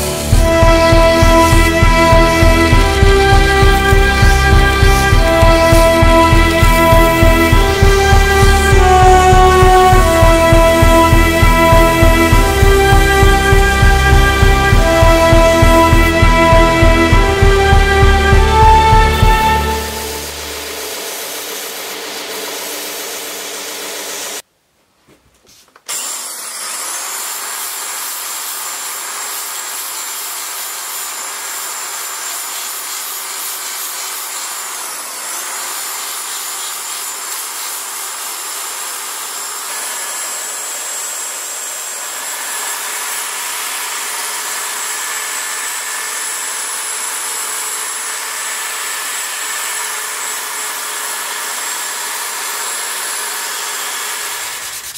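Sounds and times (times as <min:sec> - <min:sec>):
belt sander running: 0:00.0 - 0:24.4, 0:25.9 - 0:54.9
power file whining: 0:00.0 - 0:24.4, 0:25.9 - 0:54.9.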